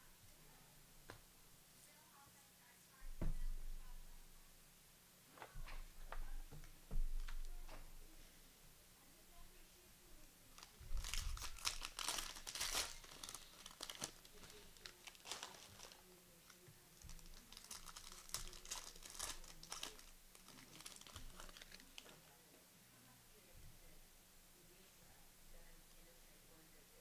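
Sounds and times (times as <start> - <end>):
plastic wrappers tearing and crinkling: 10.6 - 22.2.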